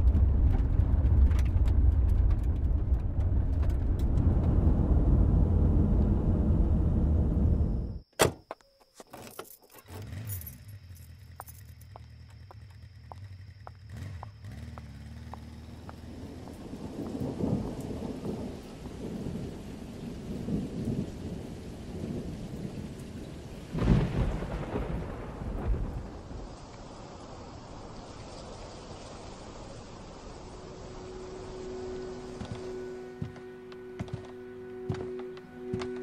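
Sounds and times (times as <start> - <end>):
low hum: 0.0 - 8.0
low uneven rumbling: 0.0 - 8.0
car door shutting: 8.2 - 9.4
footsteps on pavement: 11.4 - 16.3, 32.4 - 36.0.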